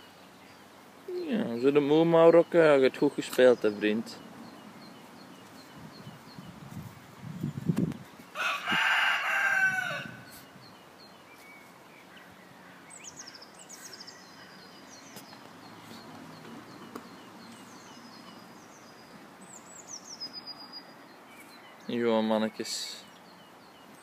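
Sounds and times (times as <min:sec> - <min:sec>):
small birds chirping: 0:00.0 - 0:24.0
rooster crowing: 0:08.4 - 0:10.3.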